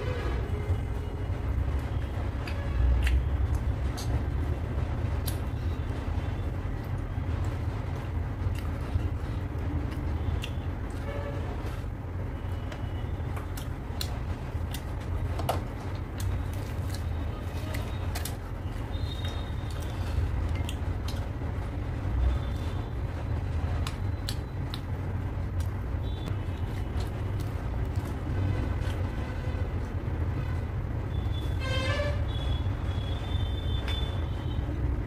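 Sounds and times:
low background rumble: 0.0s - 35.0s
person chewing: 2.4s - 4.2s, 8.5s - 11.1s, 13.3s - 18.5s, 19.2s - 21.3s, 26.5s - 29.1s.

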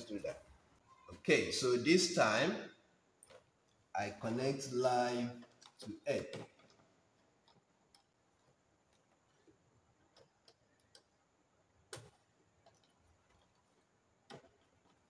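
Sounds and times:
screwdriver clicks and taps: 10.1s - 15.0s.

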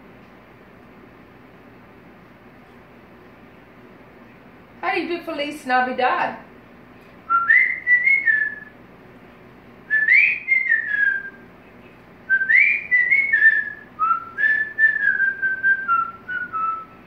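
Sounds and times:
parrot whistling a tune: 7.3s - 8.7s, 9.9s - 11.4s, 12.3s - 17.0s.

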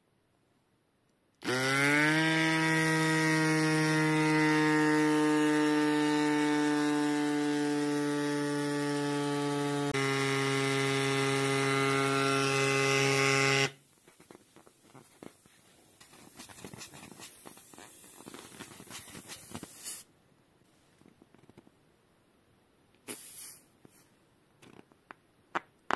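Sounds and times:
electric pump motor humming: 1.4s - 13.8s.

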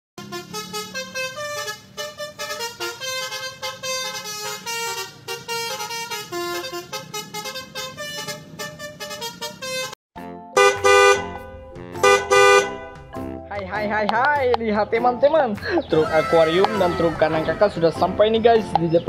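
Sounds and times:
horn-like tune: 0.2s - 10.0s, 10.6s - 13.1s.

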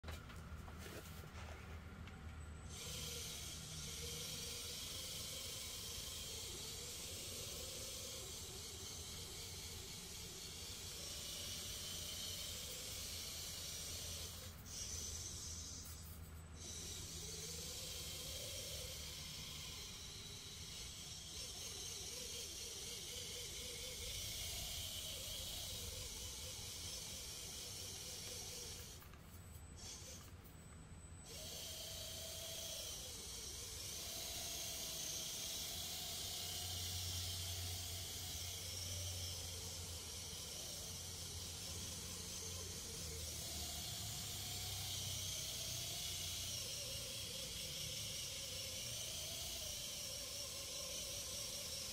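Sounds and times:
faint wavering whine: 0.0s - 51.9s
low hum: 0.0s - 51.9s.

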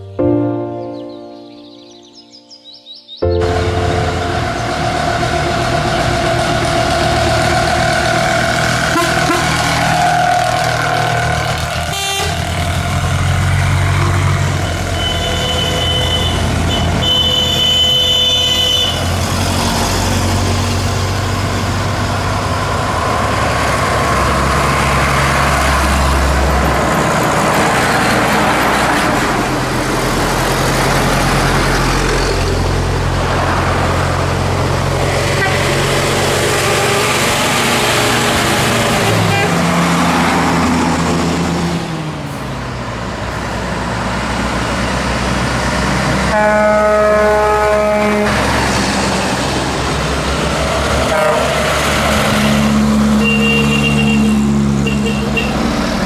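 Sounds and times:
lorry engines rumbling past: 3.3s - 56.0s
horn tooting: 8.2s - 12.8s, 14.5s - 19.3s, 35.2s - 37.4s, 39.0s - 39.8s, 46.3s - 48.5s, 51.0s - 51.6s, 53.1s - 55.7s.

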